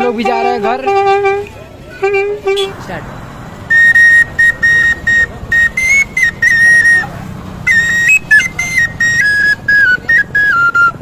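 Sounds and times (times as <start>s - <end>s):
high flute-like whistle tune: 3.6s - 11.0s.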